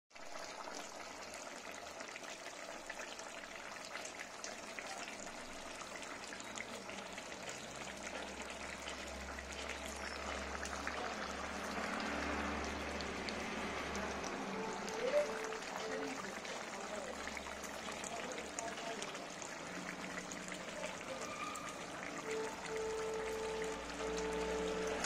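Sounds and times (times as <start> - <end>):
food sizzling and crackling: 0.1 - 25.0.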